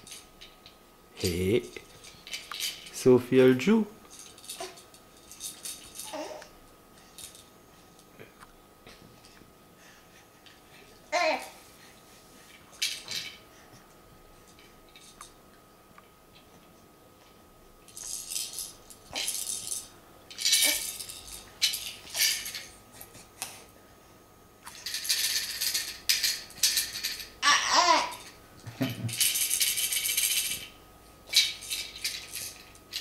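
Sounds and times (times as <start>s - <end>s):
plastic baby rattle shaken: 17.9s - 22.6s, 29.1s - 30.7s.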